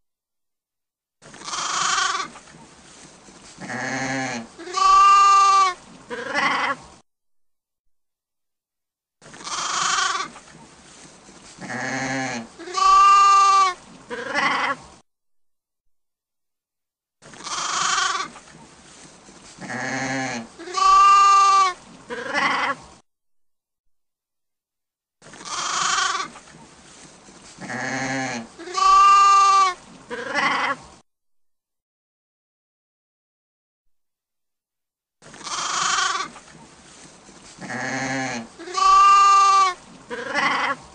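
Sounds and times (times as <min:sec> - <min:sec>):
sheep bleating: 0:01.4 - 0:02.3, 0:03.6 - 0:06.8, 0:09.3 - 0:10.4, 0:11.6 - 0:14.8, 0:17.3 - 0:18.4, 0:19.6 - 0:22.8, 0:25.4 - 0:26.4, 0:27.6 - 0:30.8, 0:35.3 - 0:36.4, 0:37.6 - 0:40.9.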